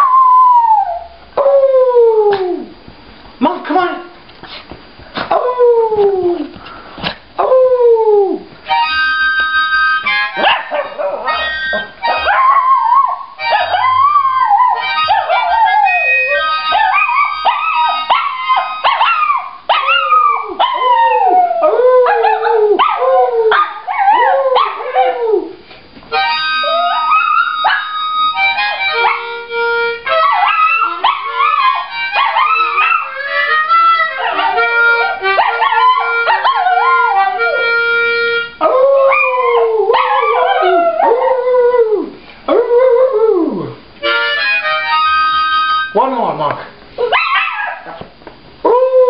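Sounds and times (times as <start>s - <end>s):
dog howling: 5.3s - 6.5s, 7.4s - 8.5s, 10.4s - 25.6s, 26.6s - 28.0s, 30.0s - 37.7s, 38.6s - 43.8s, 48.6s - 49.0s
harmonica chords: 8.6s - 20.3s, 26.1s - 40.9s, 44.0s - 46.3s.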